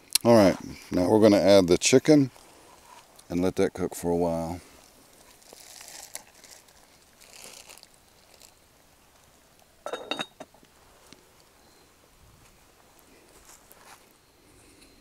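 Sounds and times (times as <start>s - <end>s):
metal lid clinking onto pot: 9.9s - 10.5s.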